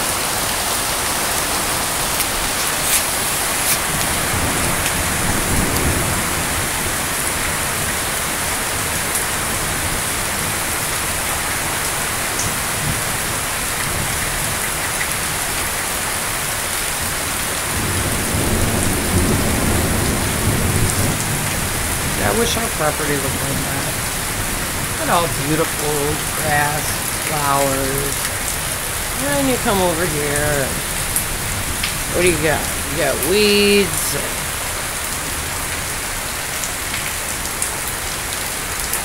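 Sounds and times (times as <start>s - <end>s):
heavy rain falling: 0.0s - 39.0s
low rumble of thunder: 4.0s - 7.9s, 17.7s - 22.3s.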